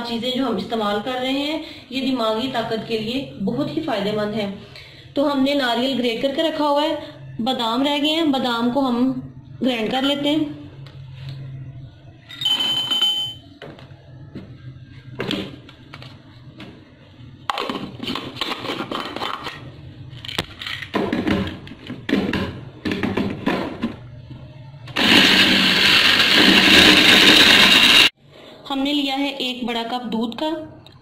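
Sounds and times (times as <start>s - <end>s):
short ringing tone: 12.3s - 13.5s
blender motor grinding: 24.9s - 28.1s.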